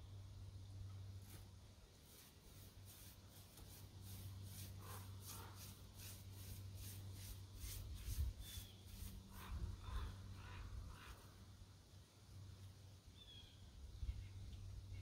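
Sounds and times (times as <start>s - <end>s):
paintbrush scratchy strokes: 1.2s - 11.2s.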